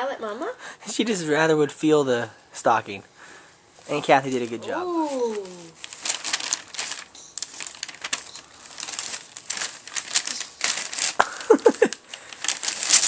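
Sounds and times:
wrapping paper crinkling: 4.2 - 13.0.

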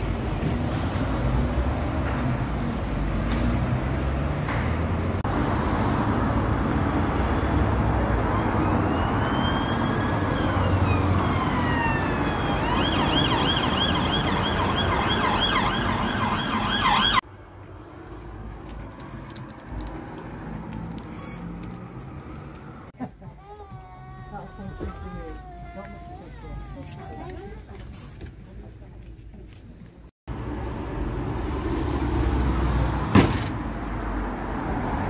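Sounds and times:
road traffic: 0.0 - 35.0
emergency siren wailing and yelping: 8.3 - 17.2.

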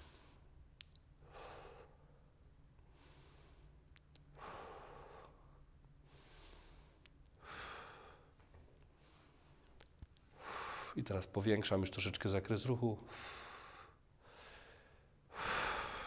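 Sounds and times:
man breathing softly: 0.0 - 0.6, 1.2 - 9.7, 10.3 - 11.0, 13.0 - 16.0.

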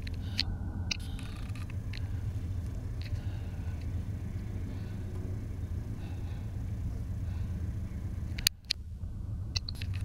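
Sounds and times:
freight train rumbling past: 0.2 - 9.6.

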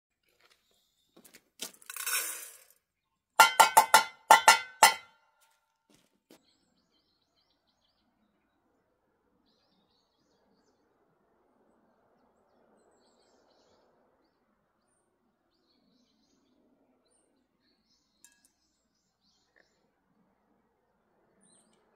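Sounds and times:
kibble rattling into bowl: 1.8 - 2.7
metallic clinks of steel bowl: 3.4 - 5.1.

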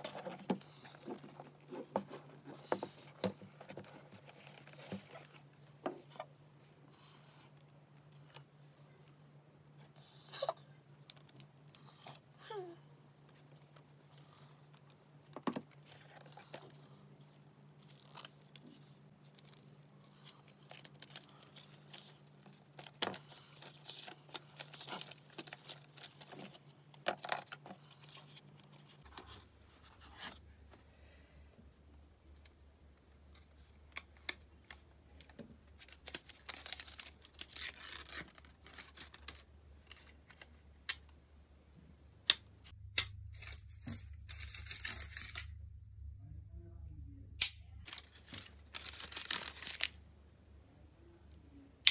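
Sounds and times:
paper and cardboard rustling: 0.0 - 6.3, 15.5 - 30.4
faint low hum: 0.0 - 51.9.

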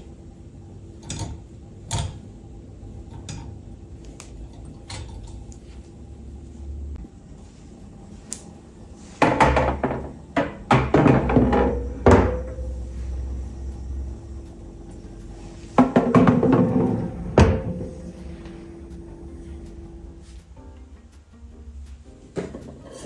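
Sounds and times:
quiet background music: 0.0 - 23.0
kitchen containers clattering: 9.2 - 12.8, 15.7 - 18.5.

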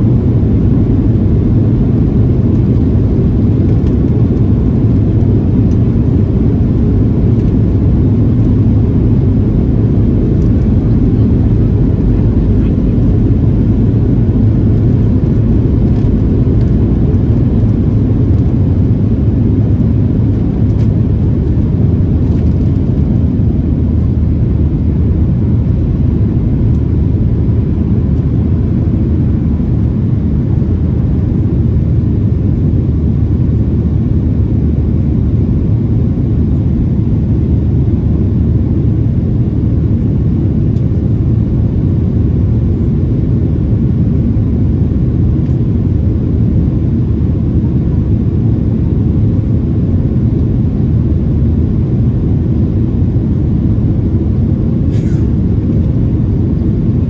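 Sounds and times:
airplane cabin engine rumble: 0.0 - 57.0.

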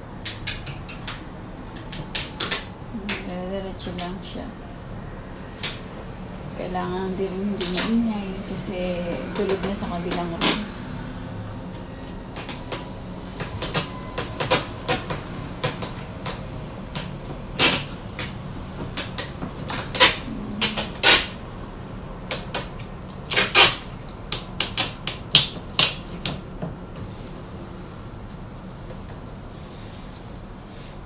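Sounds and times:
packing tape crackling: 12.3 - 21.4, 22.2 - 26.4.

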